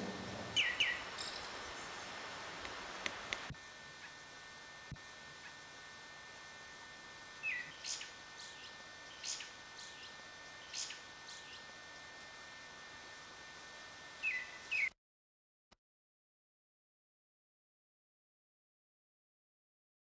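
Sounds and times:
bird chirping: 0.5 - 2.0, 7.4 - 11.6, 14.2 - 14.9.

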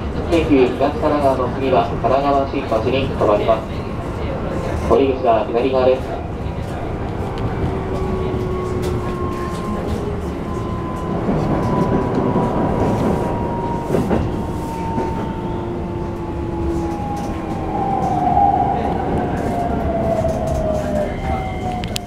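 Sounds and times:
wheels rumbling on track: 0.0 - 22.0
train motors whining: 6.7 - 22.0.

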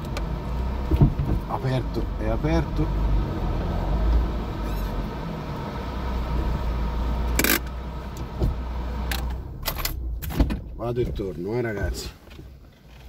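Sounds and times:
harsh engine rasp: 0.0 - 10.0
car engine running at low revs: 0.0 - 13.0.

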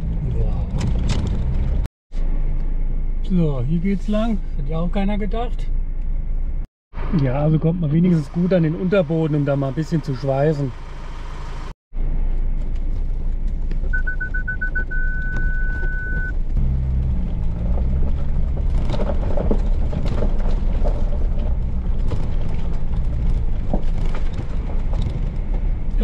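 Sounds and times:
vehicle engine rumbling: 0.0 - 26.0
electronic warning beeper: 13.9 - 16.3
stones crunching under tyres: 15.1 - 26.0.

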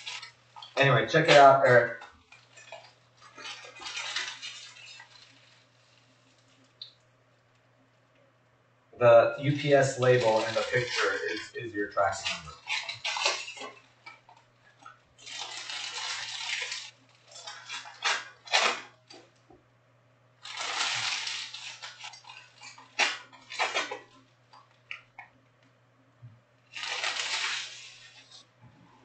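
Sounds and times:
faint low hum: 0.0 - 29.0.

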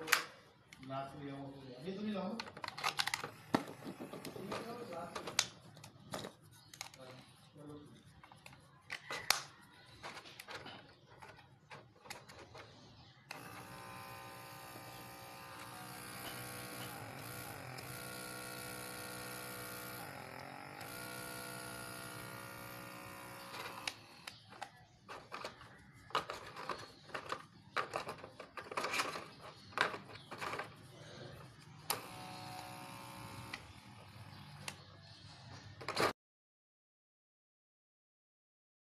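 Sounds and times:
small motor pump whining hum: 2.2 - 5.4, 13.3 - 35.1
clicks and handling noises: 2.3 - 13.5, 23.4 - 32.7.

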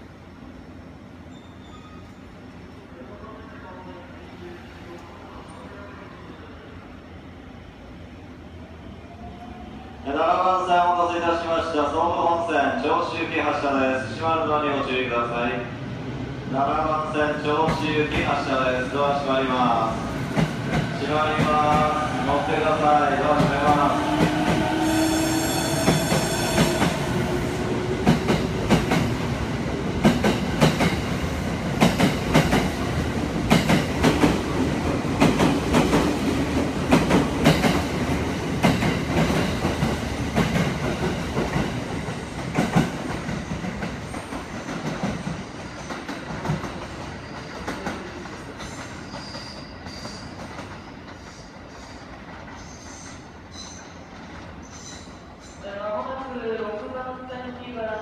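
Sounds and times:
rising train motor tone: 20.9 - 28.6.

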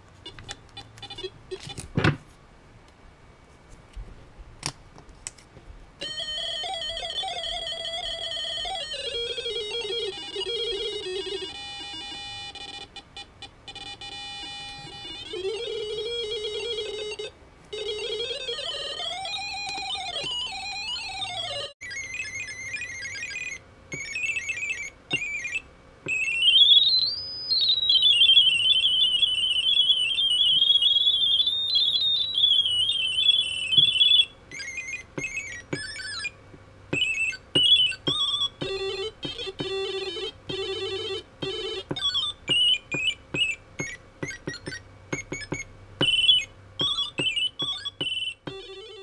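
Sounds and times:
high-pitched electronic beeping: 21.9 - 40.9, 41.5 - 48.8.

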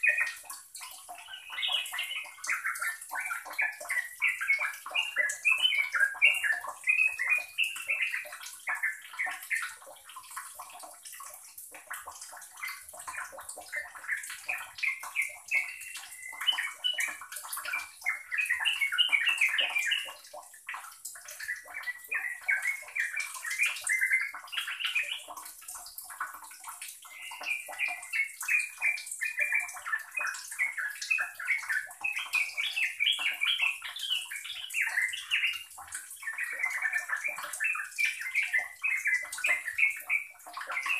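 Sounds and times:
bird singing chattering notes: 0.0 - 9.8, 12.7 - 20.3, 21.4 - 25.3, 27.0 - 40.9.

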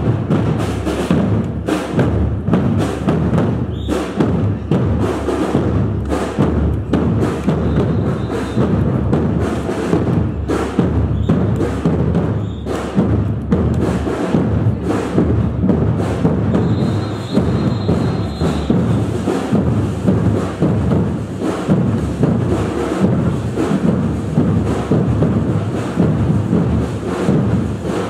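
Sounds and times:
street percussion drum group: 0.0 - 28.0.

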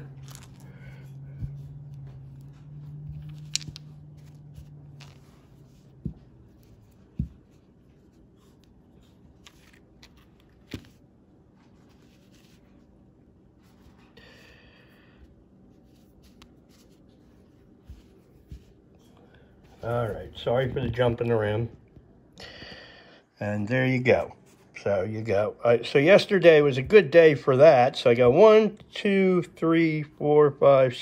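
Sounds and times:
low steady hum: 0.0 - 31.0
stones tapping and knocking: 3.0 - 5.3.

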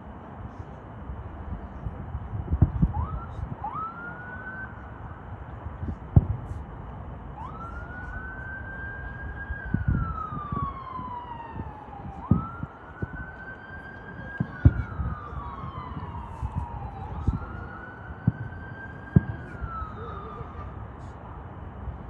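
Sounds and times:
fireworks bursting thuds: 2.5 - 3.0, 5.8 - 6.7, 14.3 - 17.5, 18.2 - 19.9
siren wailing: 2.6 - 5.2, 7.2 - 21.1.

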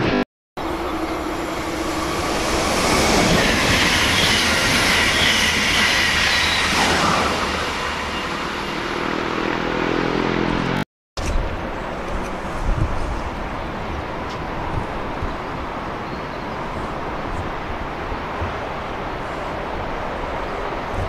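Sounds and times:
humming tone: 0.0 - 4.6
train wheels rushing on rail: 0.6 - 9.8.

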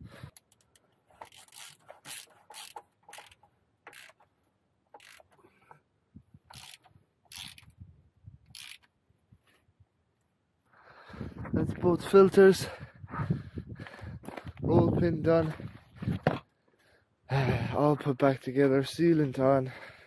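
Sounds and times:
ratchet wrench clicking: 0.3 - 4.2, 4.9 - 5.4, 6.5 - 7.8, 8.5 - 8.9.

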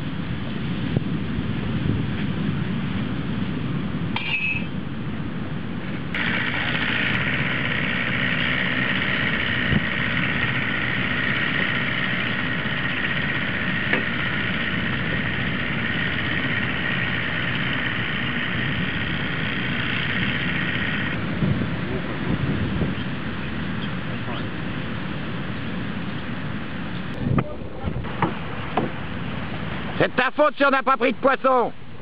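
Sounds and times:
outboard motor running: 6.1 - 27.2.

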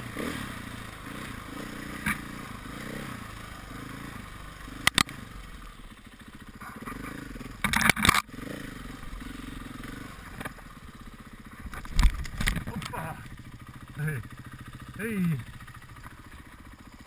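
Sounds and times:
motorcycle engine revving: 0.0 - 17.0
knocks and clatter from bike: 2.0 - 2.3, 4.8 - 5.2, 6.6 - 8.3, 11.5 - 13.4.

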